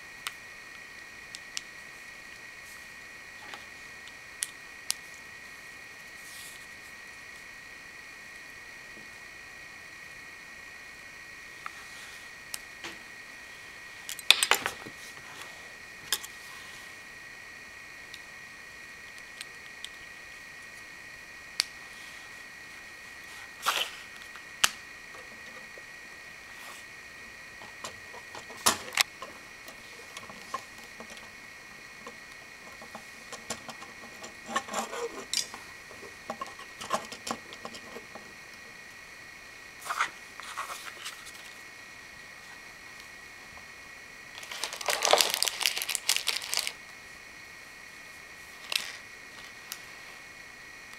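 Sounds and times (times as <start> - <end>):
faint high whine: 0.0 - 50.9
plastic pieces clicking: 44.4 - 46.8.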